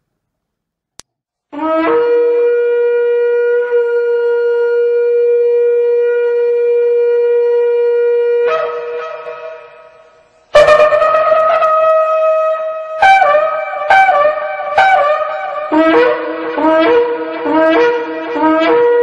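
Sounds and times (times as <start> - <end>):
long horn blast: 1.6 - 19.0.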